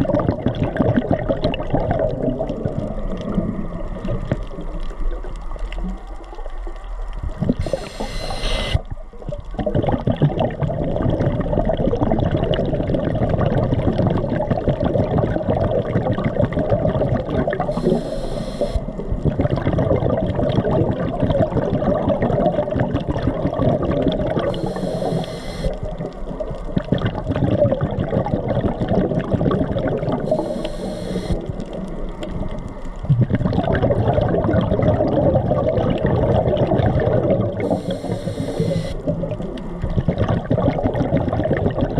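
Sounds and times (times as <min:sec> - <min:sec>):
underwater sloshing and crackling: 0:00.0 - 0:41.9
brief high hiss: 0:07.6 - 0:08.8, 0:17.8 - 0:18.8, 0:37.7 - 0:39.0.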